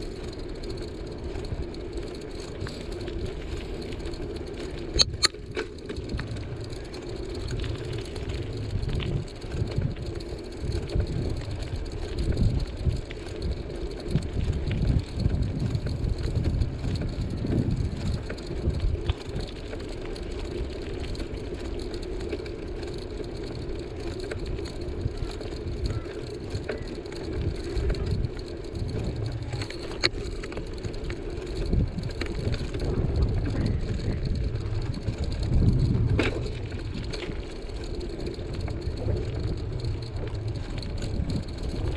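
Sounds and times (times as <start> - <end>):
bicycle tyres on pavement: 0.0 - 41.9
wind on microphone: 7.5 - 19.4, 31.6 - 41.9.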